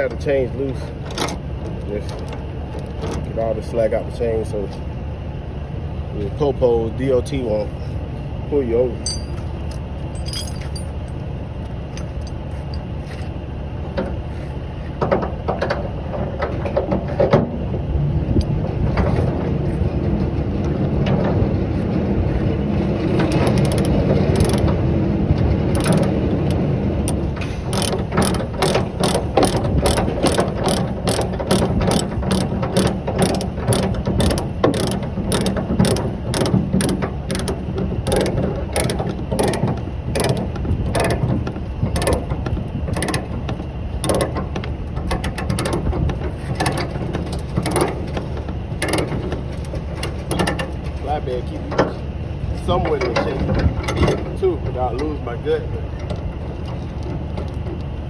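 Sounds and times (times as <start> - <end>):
steady low rumble: 0.0 - 58.0
ratchet pawl clicking: 23.3 - 24.7, 25.7 - 41.2.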